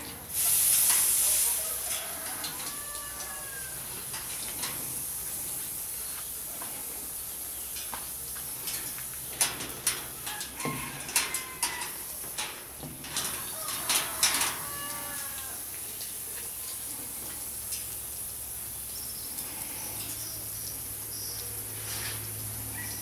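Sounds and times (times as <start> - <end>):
steady hiss: 0.0 - 23.0
parrot clucks and clicks: 13.1 - 15.6.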